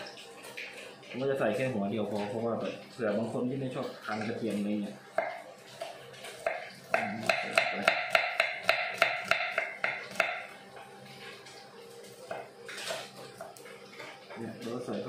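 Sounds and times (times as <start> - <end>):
knife chopping on wooden board: 6.4 - 10.4.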